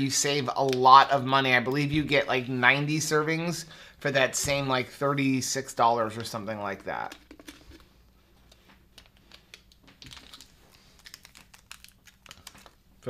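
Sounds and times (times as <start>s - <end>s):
packet crinkling: 9.0s - 13.0s.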